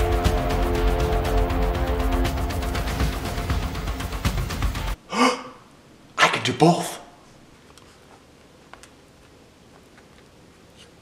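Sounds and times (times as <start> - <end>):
background music with beat: 0.0 - 5.0.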